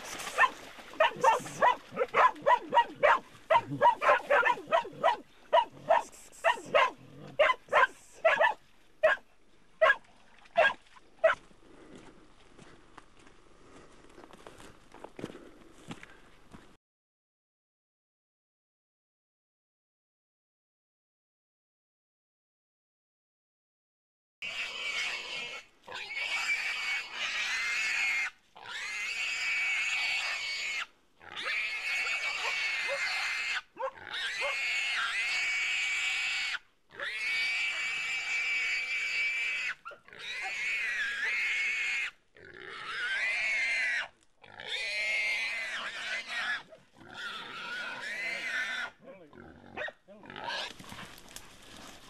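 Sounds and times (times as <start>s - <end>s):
pig squealing: 0.0s - 9.2s, 24.4s - 50.8s.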